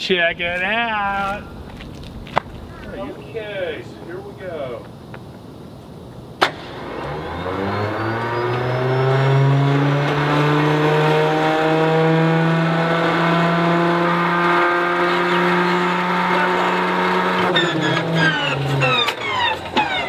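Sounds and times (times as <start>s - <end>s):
sharp crack: 6.4s - 7.0s.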